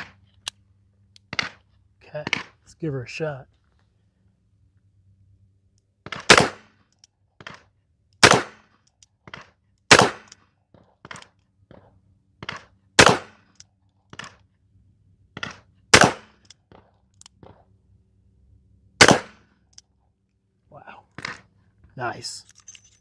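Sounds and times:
faint gunshot cracks: 0:08.2 - 0:08.6, 0:19.0 - 0:19.4.

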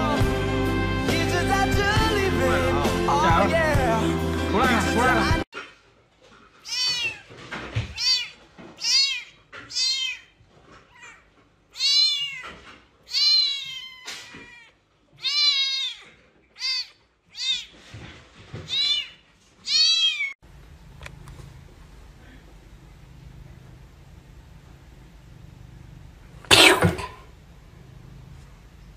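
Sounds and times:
kitten meowing: 0:06.6 - 0:07.2, 0:07.9 - 0:10.3, 0:11.8 - 0:12.4, 0:13.1 - 0:16.0, 0:16.6 - 0:17.8, 0:18.7 - 0:20.4.

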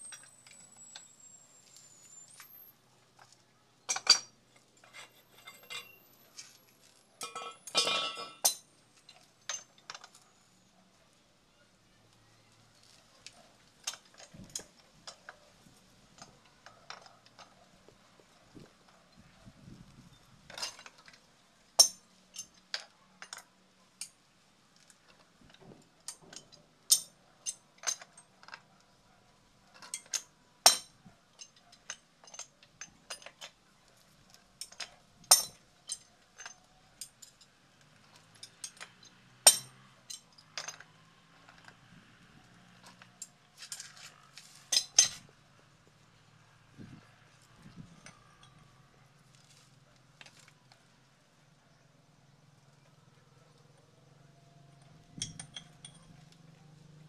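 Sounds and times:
metal tool tapping on pipe fittings: 0:07.2 - 0:08.6, 0:55.2 - 0:56.0.

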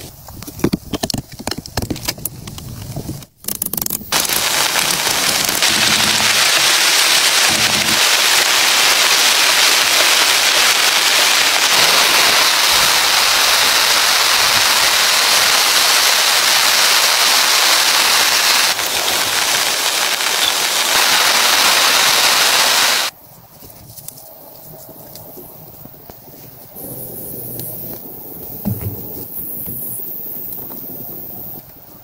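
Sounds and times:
heavy rain on plastic sheeting: 0:04.1 - 0:23.2.

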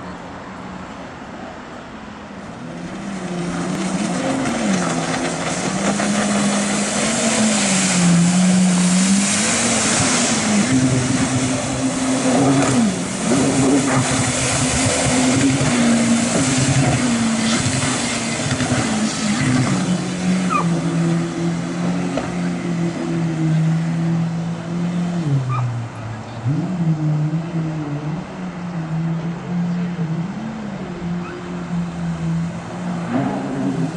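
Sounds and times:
jet ski engine revving: 0:02.4 - 0:33.9
churned water hissing: 0:02.5 - 0:25.4.

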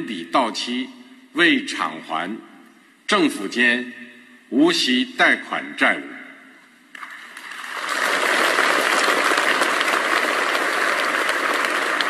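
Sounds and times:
large audience applauding: 0:07.0 - 0:12.0.

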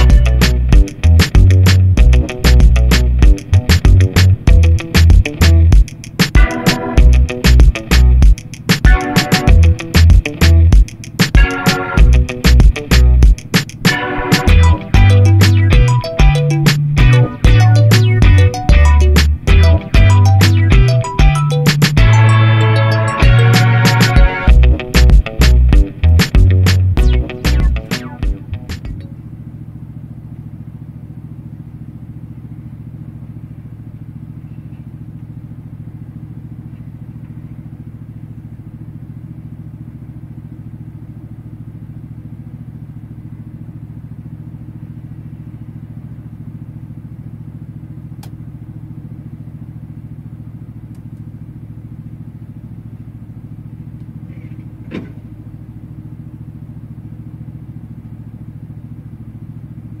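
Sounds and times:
diesel engine idling: 0:00.0 - 1:00.0
faint click: 0:50.9 - 0:51.3.

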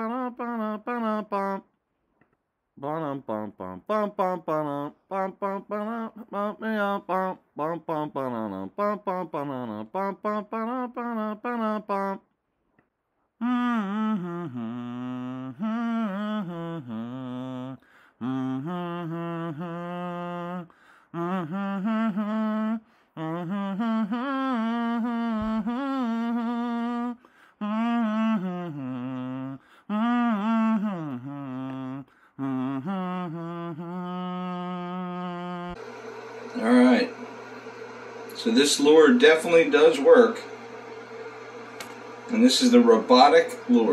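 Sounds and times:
person humming: 0:00.0 - 0:01.6, 0:02.8 - 0:12.2, 0:13.4 - 0:35.8.

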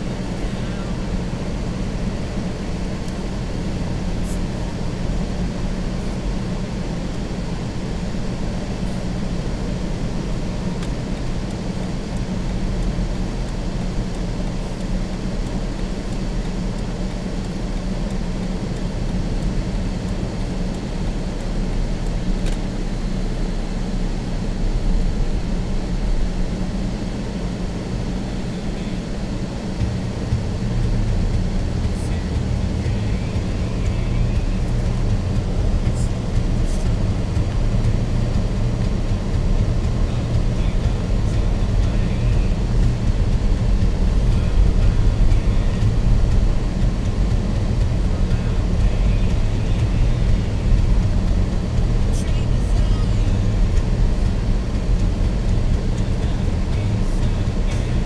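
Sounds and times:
car cabin rumble on snowy road: 0:00.0 - 0:58.0.

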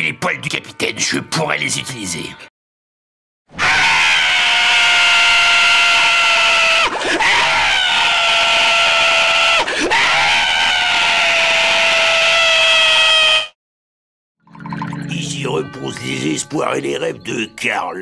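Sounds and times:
cartoon character screaming: 0:03.6 - 0:13.5.

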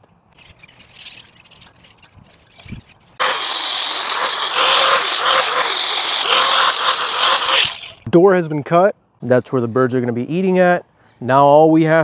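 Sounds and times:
power tool whining: 0:03.2 - 0:08.1.

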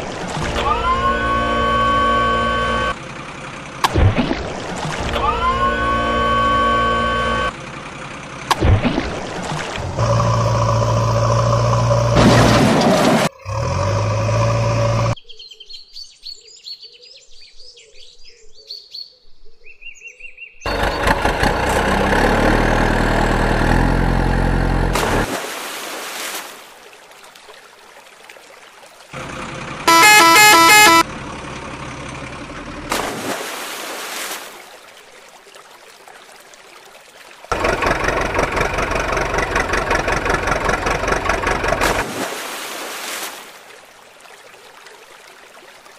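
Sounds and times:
pulsing truck horn: 0:00.5 - 0:03.1, 0:05.1 - 0:07.7, 0:10.0 - 0:12.2, 0:20.7 - 0:25.3, 0:29.2 - 0:31.3
truck engine revving: 0:00.5 - 0:03.9, 0:05.2 - 0:08.6, 0:09.7 - 0:15.2, 0:20.7 - 0:25.4, 0:29.2 - 0:33.0, 0:37.5 - 0:42.1.

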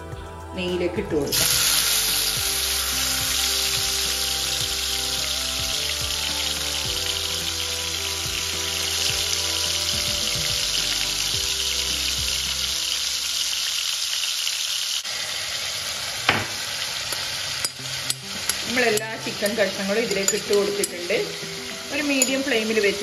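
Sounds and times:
chicken sizzling in hot fat: 0:01.3 - 0:23.0
knock: 0:16.3 - 0:16.6.

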